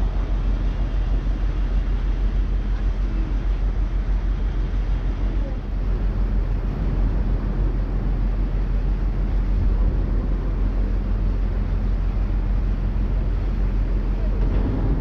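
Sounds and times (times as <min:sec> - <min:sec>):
boat engine humming: 0:00.0 - 0:15.0
broad rushing noise: 0:00.0 - 0:15.0.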